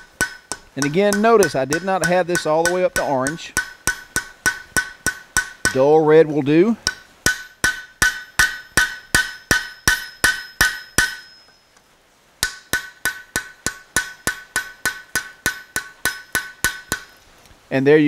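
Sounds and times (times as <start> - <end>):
anvil ringing: 0.0 - 6.0, 6.8 - 11.7, 12.4 - 17.1
hammer blows on anvil: 0.0 - 6.0, 6.8 - 11.6.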